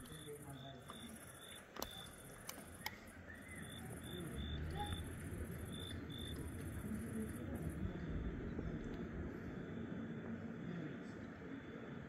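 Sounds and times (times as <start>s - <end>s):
sharp clicks: 0.0s - 3.8s
short insect chirp: 0.0s - 6.5s
insects pulsing trill: 0.0s - 8.5s
low rumble: 4.4s - 10.5s.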